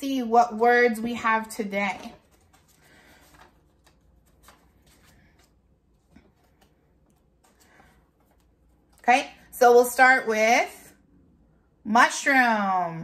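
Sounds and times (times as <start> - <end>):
paper cards rustling: 1.0 - 9.1
light clicks of paper cards: 2.0 - 9.0.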